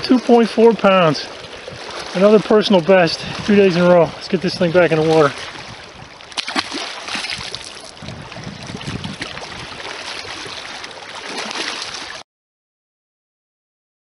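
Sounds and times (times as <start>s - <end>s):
water lapping: 0.0s - 12.2s
fish splashing into water: 6.2s - 8.0s, 8.6s - 12.2s
wind rushing: 7.1s - 9.8s.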